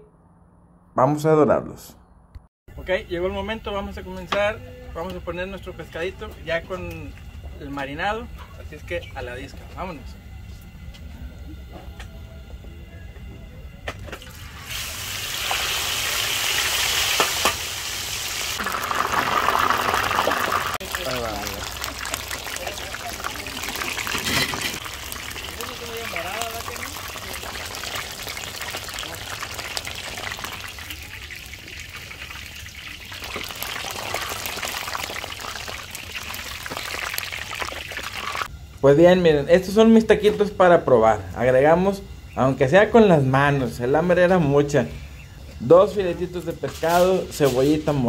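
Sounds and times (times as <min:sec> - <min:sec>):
fish frying in oil sizzling: 0:14.2 - 0:38.5.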